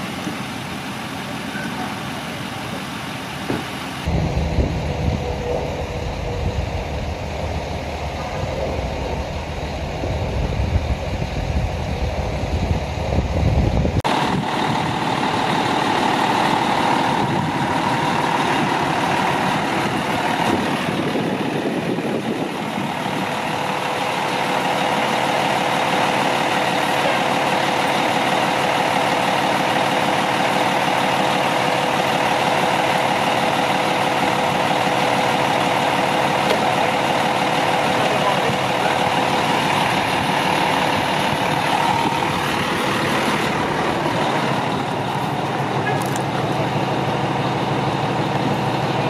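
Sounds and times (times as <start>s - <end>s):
fire truck engine idling: 0.0s - 49.0s
low rumble: 4.1s - 15.0s.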